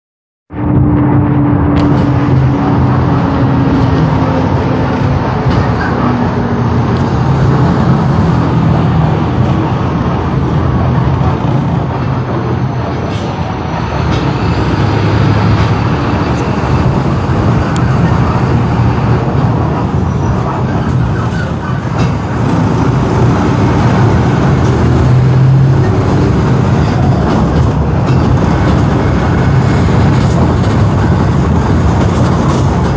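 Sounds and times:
bus engine running: 0.5s - 32.9s
bus brakes: 13.0s - 14.8s.

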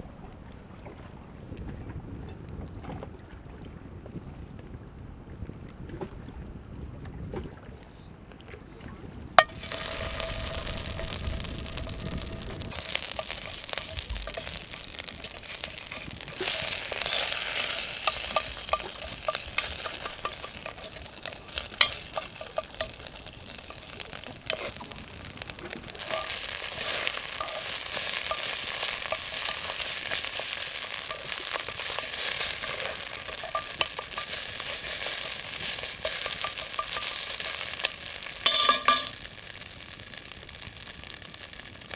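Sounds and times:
wooden spatula scraping pot: 9.4s - 39.2s
paste sizzling in hot oil: 9.4s - 41.9s.

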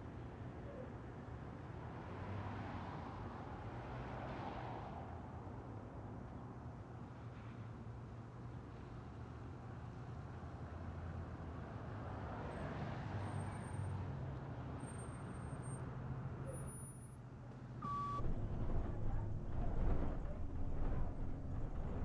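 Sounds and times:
bus engine drone: 4.6s - 22.0s
short high beep: 17.8s - 18.2s.

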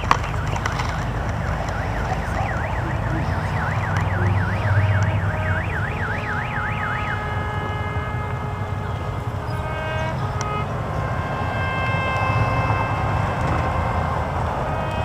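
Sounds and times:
electronic siren warbling: 0.0s - 7.9s.

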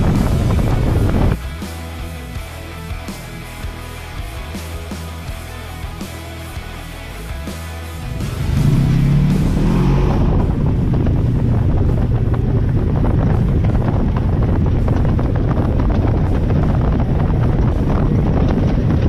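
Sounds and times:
wind buffeting microphone: 0.0s - 1.5s, 8.2s - 19.0s
music: 0.0s - 19.0s
vehicle engine low rumble: 0.0s - 19.0s.

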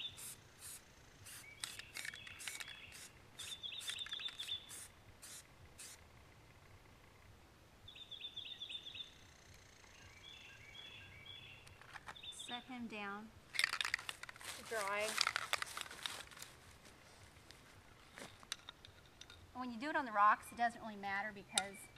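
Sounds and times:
birds chirping: 0.0s - 4.9s, 7.9s - 13.2s, 20.0s - 21.9s
spray paint can hissing: 0.0s - 6.0s.

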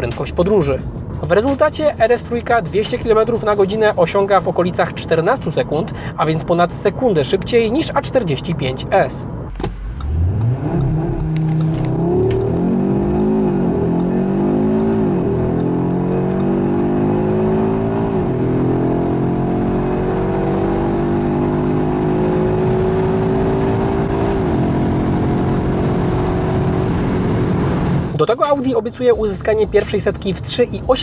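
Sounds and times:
car engine accelerating hard: 9.5s - 28.2s.

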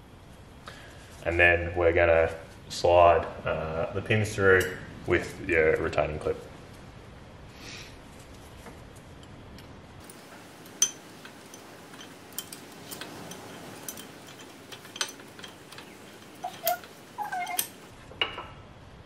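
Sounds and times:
short squeaks: 12.0s - 18.0s.

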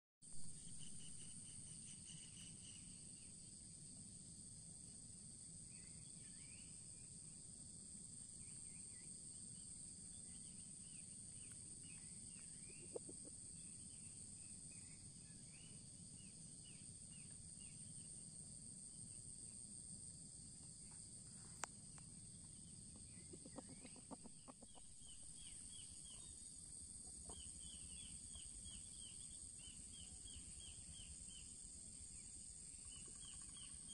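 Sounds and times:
small birds chirping: 10.2s - 17.9s, 22.5s - 33.9s
high-pitched insect drone: 27.3s - 33.9s.

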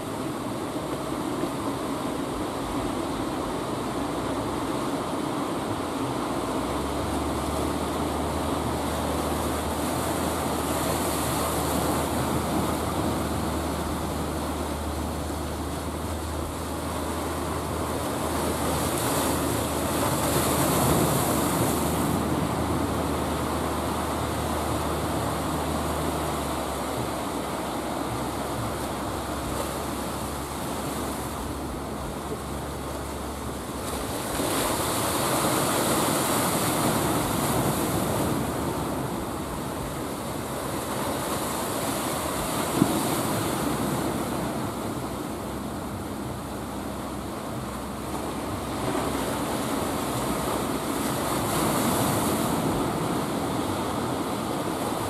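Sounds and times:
boat engine droning: 0.0s - 55.0s
waves breaking: 0.0s - 55.0s.

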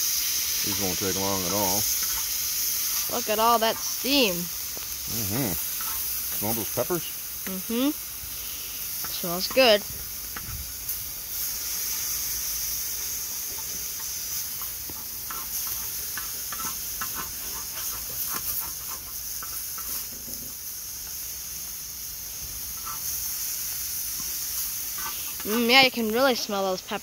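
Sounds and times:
vegetables sizzling in hot oil: 0.0s - 27.0s
spatula scraping and tapping steel: 13.5s - 21.2s.

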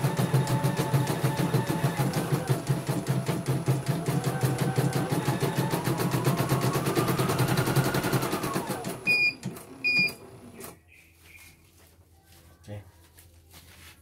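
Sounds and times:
embroidery machine stitching: 0.0s - 10.7s
machine beeps: 9.0s - 10.2s.

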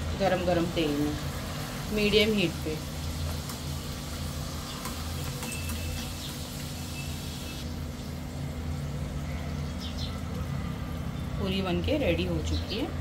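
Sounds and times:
food sizzling in hot oil: 0.0s - 9.2s.

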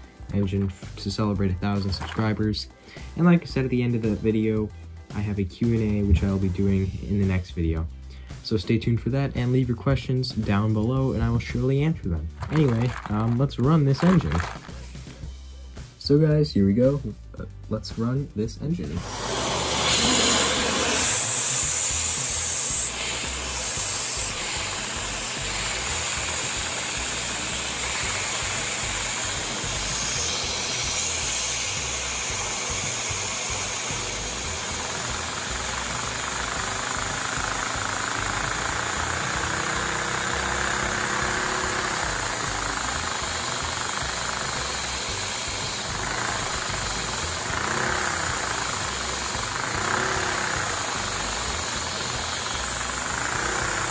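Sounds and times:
plastic pistons clattering: 1.8s - 2.4s, 12.4s - 14.8s, 33.9s - 53.9s.

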